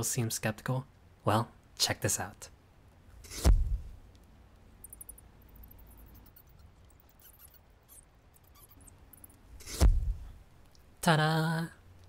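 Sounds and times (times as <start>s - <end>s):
low thump: 3.4s - 3.8s, 9.8s - 10.3s
high-pitched squeaks: 4.8s - 9.9s.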